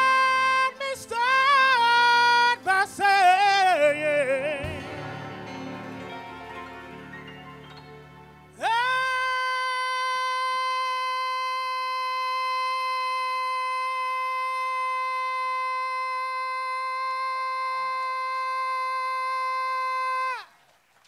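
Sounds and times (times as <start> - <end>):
man singing a long high note: 0.0 - 5.2, 8.6 - 20.5
backing music: 0.0 - 10.5.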